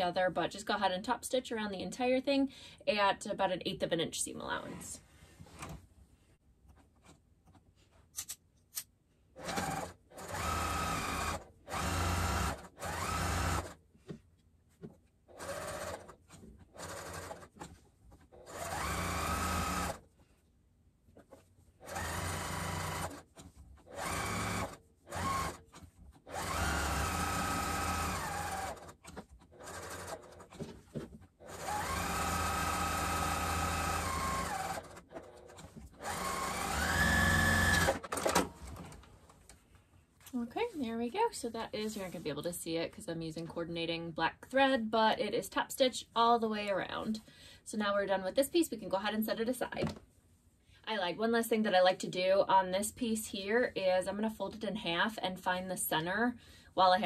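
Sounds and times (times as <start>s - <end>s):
electric sewing machine stitching: 9.4s - 13.8s, 15.3s - 17.7s, 18.3s - 20.0s, 21.8s - 30.7s, 31.4s - 39.0s.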